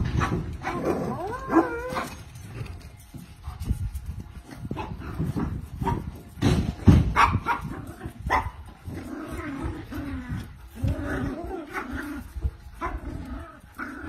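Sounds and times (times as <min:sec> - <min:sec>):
dogs barking and whining: 0:00.0 - 0:14.0.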